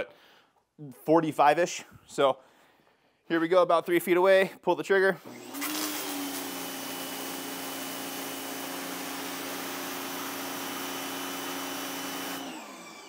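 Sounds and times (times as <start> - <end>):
pressure washer motor hum: 5.2 - 13.0.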